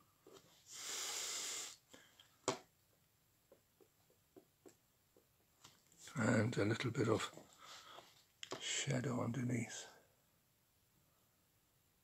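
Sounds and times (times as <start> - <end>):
person exhaling through nose: 0.7 - 2.0.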